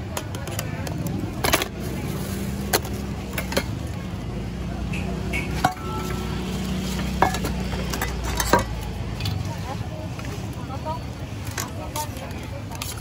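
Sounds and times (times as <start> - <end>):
utensils and containers clinking: 0.1 - 4.0, 5.4 - 9.7.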